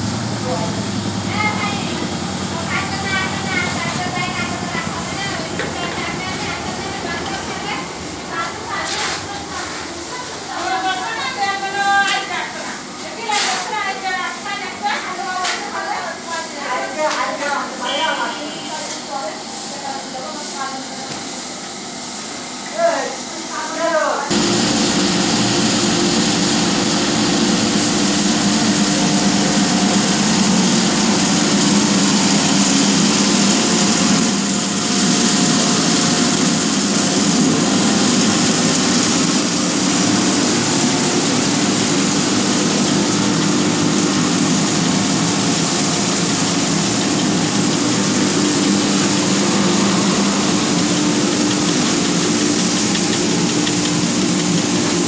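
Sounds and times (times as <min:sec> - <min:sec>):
low machine hum: 0:00.0 - 0:08.8, 0:24.3 - 0:55.0
machine drum and pulleys turning: 0:24.3 - 0:55.0.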